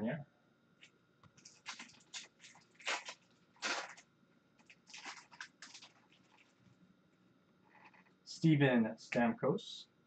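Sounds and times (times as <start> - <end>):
card wrappers crinkling: 1.4 - 6.8.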